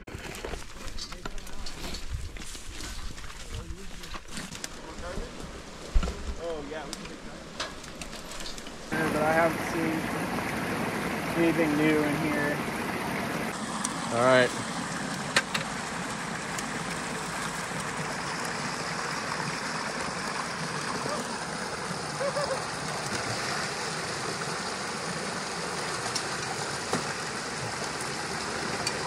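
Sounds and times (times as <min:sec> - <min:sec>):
creek water rushing through dam: 0:08.9 - 0:29.0.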